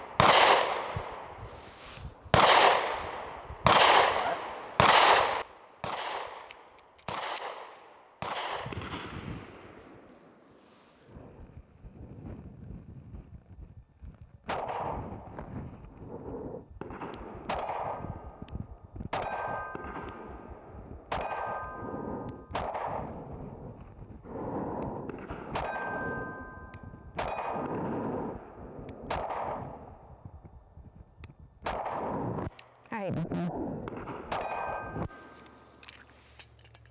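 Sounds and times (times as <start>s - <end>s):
pistol shots: 0.0s - 1.3s, 2.3s - 9.3s, 14.5s - 15.0s, 16.8s - 18.2s, 19.1s - 20.5s, 21.1s - 21.8s, 22.5s - 23.3s, 27.2s - 28.3s, 29.0s - 29.8s, 31.6s - 32.5s, 33.9s - 35.2s
bullet ringing on steel target: 19.2s - 20.0s, 21.1s - 21.9s, 25.6s - 27.7s, 34.4s - 35.4s.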